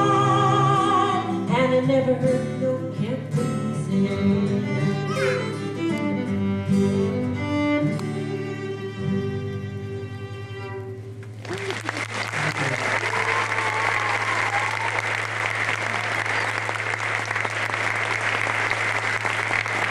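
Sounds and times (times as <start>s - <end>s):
fiddle and acoustic guitar note: 0.0s - 11.4s
audience applause: 11.3s - 19.9s.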